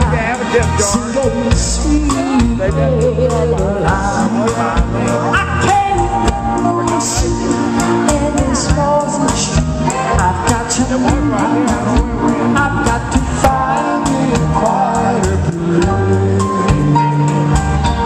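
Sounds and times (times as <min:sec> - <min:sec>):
bass line: 0:00.0 - 0:18.0
drums: 0:00.0 - 0:18.0
person singing: 0:00.0 - 0:18.0.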